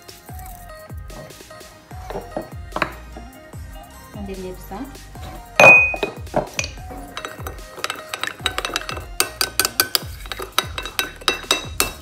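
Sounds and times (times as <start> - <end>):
spoon clinking glass bowl: 5.6 - 12.0
spoon tapping bowl: 5.6 - 12.0
spoon whisking in bowl: 7.0 - 12.0.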